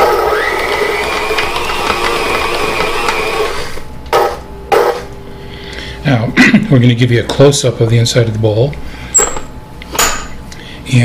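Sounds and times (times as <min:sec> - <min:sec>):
stand mixer motor whirring: 0:00.0 - 0:03.8.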